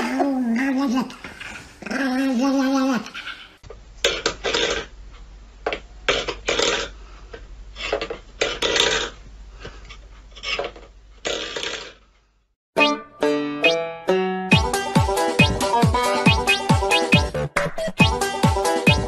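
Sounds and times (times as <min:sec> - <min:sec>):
metal bowl scraping on wooden floor: 0:10.3 - 0:12.0.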